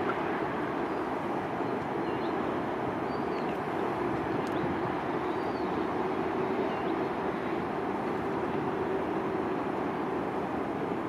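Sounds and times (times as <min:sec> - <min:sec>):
jet engine rumble: 0:00.0 - 0:11.0.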